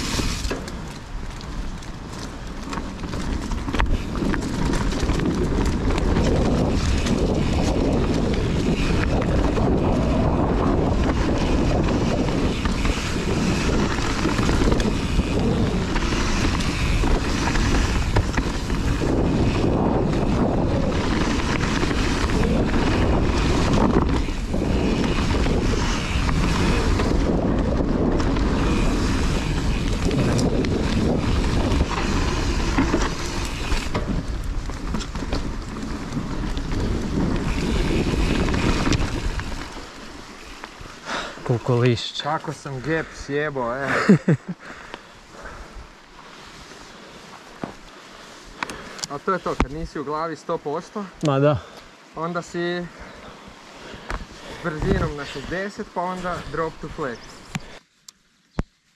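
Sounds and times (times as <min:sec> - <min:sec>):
bike rattling and knocking: 0:00.0 - 0:42.7
wind buffeting microphone: 0:00.0 - 0:50.2, 0:52.8 - 0:57.8
tyres rumbling over rough ground: 0:00.0 - 0:57.8.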